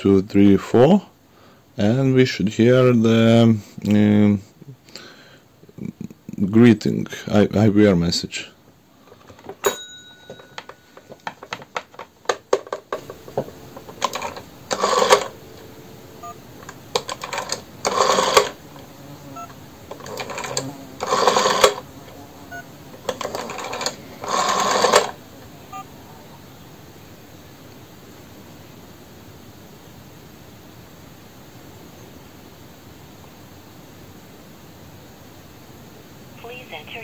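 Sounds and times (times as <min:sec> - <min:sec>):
rotary phone dial clicking: 0:12.3 - 0:15.4, 0:16.6 - 0:18.6, 0:19.9 - 0:21.8, 0:23.0 - 0:25.2
short dial tones: 0:13.0 - 0:25.9.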